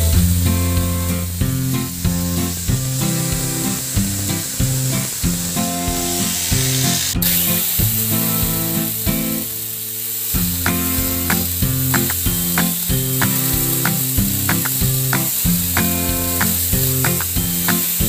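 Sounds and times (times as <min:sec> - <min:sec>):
melody with bass line: 0:00.0 - 0:09.6
steady hiss: 0:00.0 - 0:18.0.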